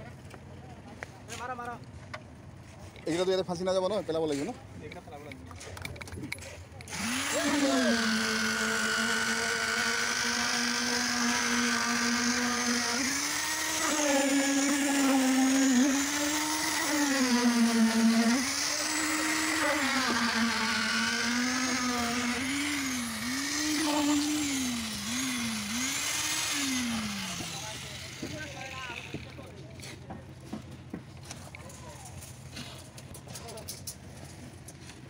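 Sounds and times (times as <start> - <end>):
concrete vibrator motor hum: 6.8 - 31.1.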